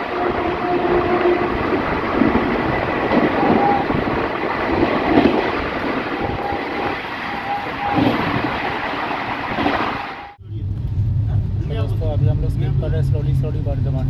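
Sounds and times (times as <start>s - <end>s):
rushing air: 0.0s - 11.2s
train wheels roaring on rail: 0.0s - 14.0s.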